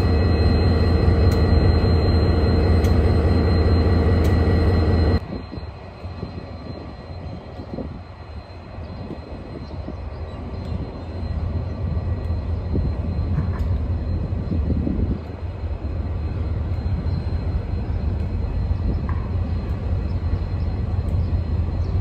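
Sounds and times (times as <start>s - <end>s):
diesel locomotive idling: 0.0s - 22.0s.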